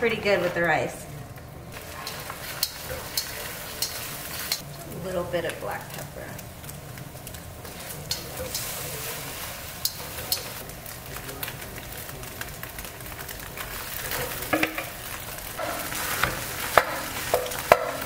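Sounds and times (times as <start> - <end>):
egg sizzling in hot oil: 1.6 - 18.0
spatula scraping and knocking wok: 1.7 - 10.7, 13.4 - 18.0.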